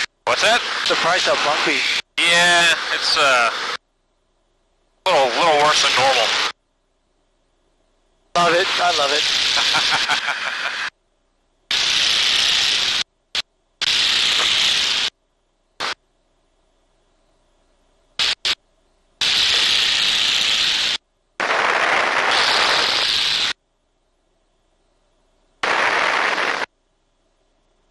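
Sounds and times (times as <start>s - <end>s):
intercom hiss bursts: 0.0s - 3.8s, 5.1s - 6.6s, 8.4s - 10.9s, 11.7s - 15.2s, 15.8s - 16.0s, 18.2s - 18.6s, 19.2s - 23.6s, 25.6s - 26.7s.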